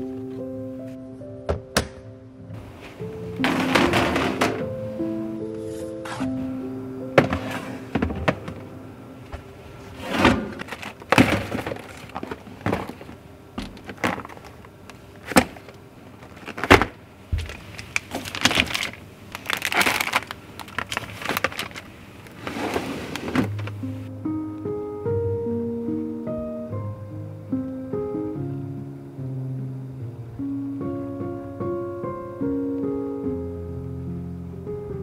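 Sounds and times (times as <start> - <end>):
cardboard and plastic wrap rustling: 2.6 - 4.9, 7.2 - 24.0
boxes knocking into plastic baskets: 3.0 - 4.9, 7.1 - 23.8.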